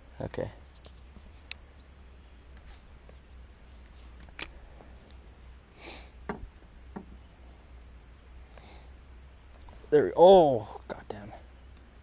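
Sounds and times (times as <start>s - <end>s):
low steady hum: 0.0s - 12.0s
sniff: 5.8s - 6.1s.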